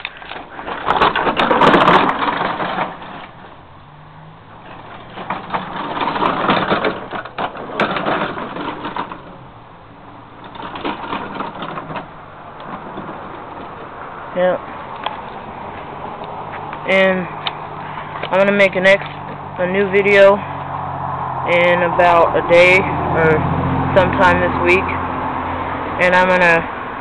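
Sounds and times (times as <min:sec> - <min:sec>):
coaster wheels rattling on track: 0:00.0 - 0:16.2.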